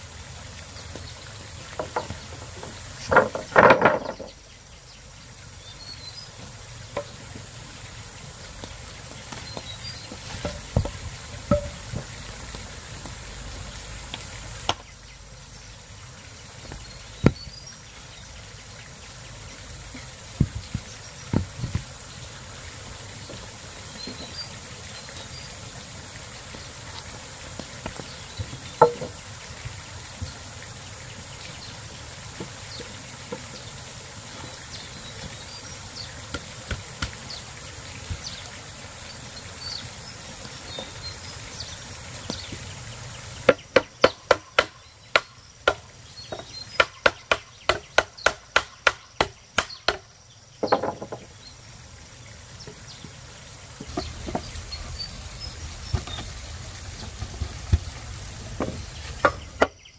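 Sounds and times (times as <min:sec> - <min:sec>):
sharp knocks in bursts: 0:03.0 - 0:04.4, 0:10.4 - 0:12.1, 0:28.4 - 0:29.2, 0:43.5 - 0:51.3.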